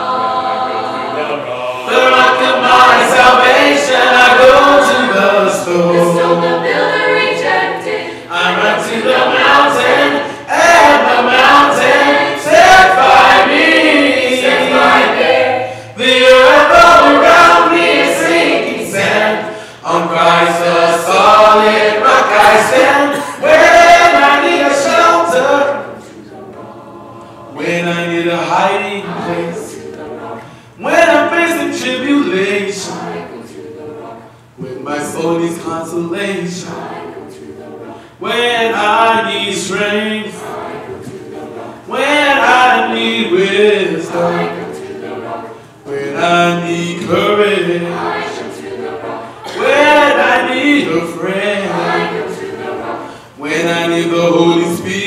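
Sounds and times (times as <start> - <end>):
choir singing gospel: 0.0 - 55.0
singers breathing: 8.0 - 8.3, 10.2 - 10.5, 15.6 - 16.0, 19.4 - 19.8, 30.4 - 30.8, 37.9 - 38.2, 49.2 - 49.5, 53.0 - 53.4.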